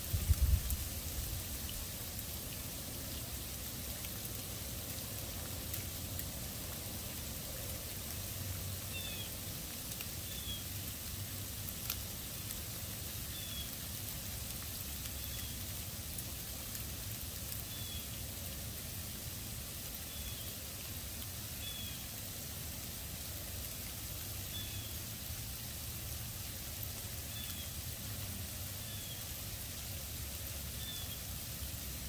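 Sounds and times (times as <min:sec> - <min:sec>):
rain hissing: 0:00.0 - 0:32.0
faint ticks: 0:09.8 - 0:10.6, 0:11.7 - 0:12.6.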